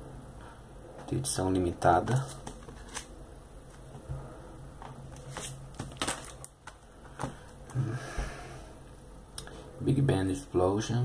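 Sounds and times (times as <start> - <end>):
plastic rustling: 4.8 - 7.6.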